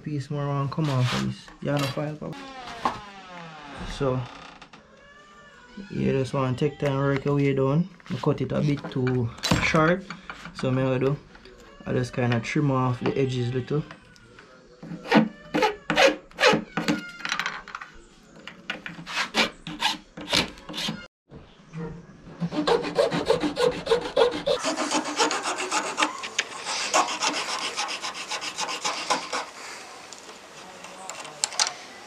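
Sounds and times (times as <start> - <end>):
file scraping plastic: 0.7 - 2.2, 18.7 - 21.1, 22.4 - 29.7.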